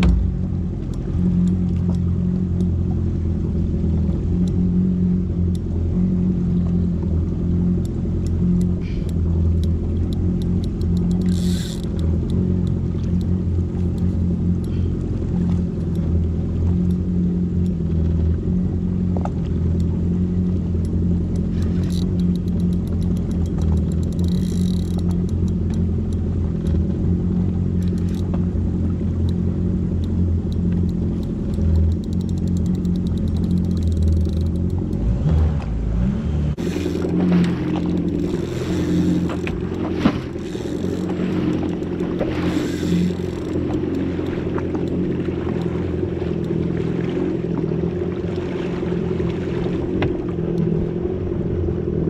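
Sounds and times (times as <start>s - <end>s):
jet ski engine idling: 0.0s - 52.0s
light clicks: 6.6s - 17.0s, 19.2s - 26.8s, 27.7s - 28.5s, 29.2s - 35.0s, 36.7s - 46.6s.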